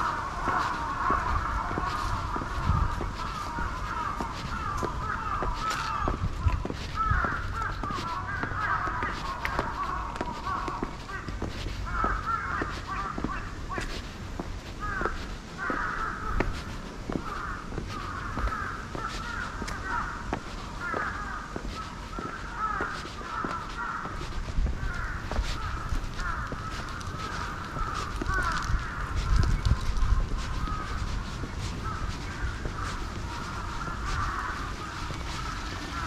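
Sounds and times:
birds chattering: 0.0 - 36.0
footsteps on stone steps: 0.0 - 36.0.

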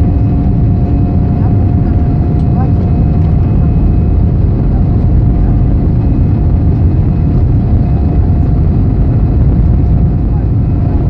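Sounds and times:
jet engine rumble in cabin: 0.0 - 11.0
steady hum: 0.0 - 11.0.

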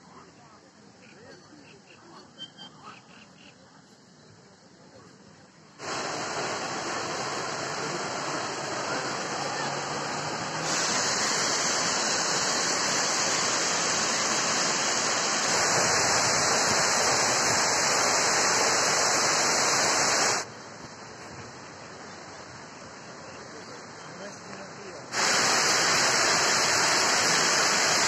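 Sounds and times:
water rushing over a weir: 5.8 - 21.6, 24.5 - 28.0.

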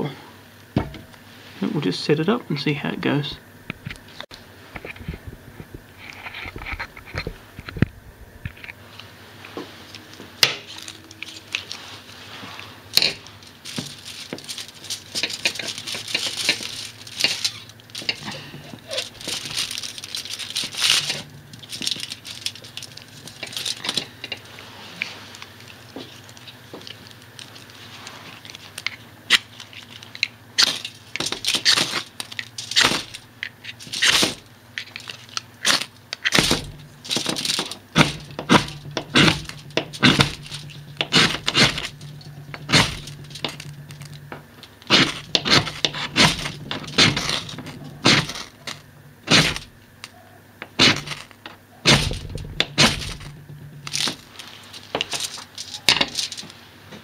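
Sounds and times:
aluminium foil rustling: 9.7 - 57.0
sharp scrapes and clicks: 12.6 - 56.5.

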